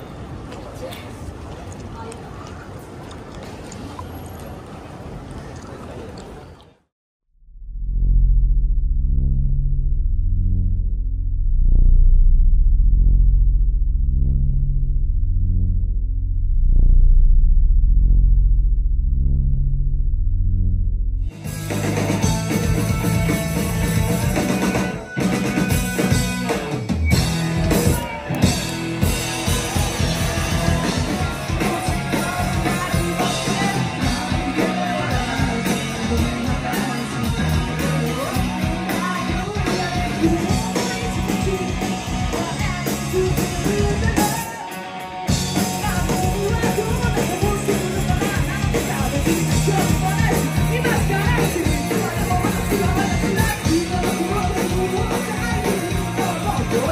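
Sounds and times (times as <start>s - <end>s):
live punk rock band: 21.4s - 56.9s
person singing: 30.2s - 44.8s, 45.7s - 56.9s.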